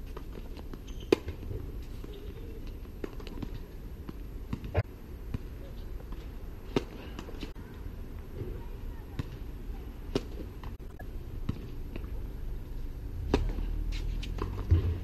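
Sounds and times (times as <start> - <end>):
rackets striking tennis ball: 0.1 - 5.5
tennis ball bouncing: 0.1 - 5.5, 13.2 - 15.0.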